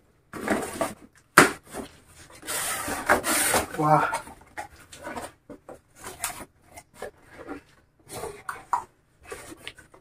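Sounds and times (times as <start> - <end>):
cardboard scraping and rubbing: 1.7 - 3.9.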